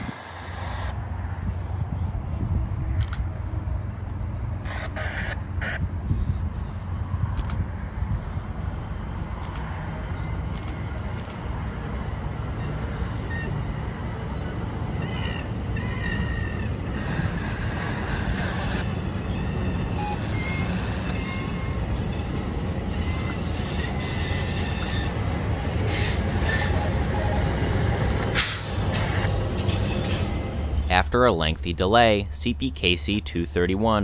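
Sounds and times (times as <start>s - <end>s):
train wheels rumbling on rail: 0.0s - 31.2s
high wheel squeals: 8.1s - 30.3s.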